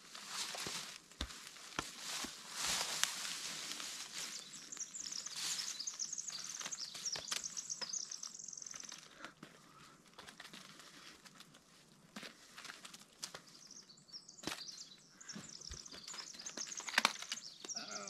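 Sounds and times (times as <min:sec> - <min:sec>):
footsteps: 0:00.1 - 0:05.8
songbird singing: 0:02.8 - 0:10.0, 0:13.3 - 0:18.0.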